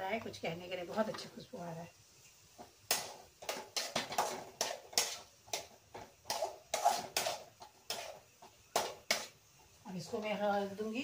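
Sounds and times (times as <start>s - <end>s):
spoon scraping a pan: 2.2s - 10.8s.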